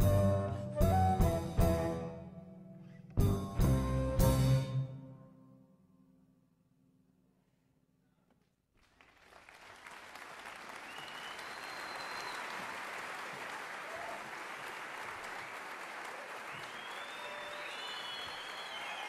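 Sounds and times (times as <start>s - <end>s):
audience applause: 8.8s - 19.0s
crowd whistles: 10.8s - 12.8s, 16.3s - 19.0s.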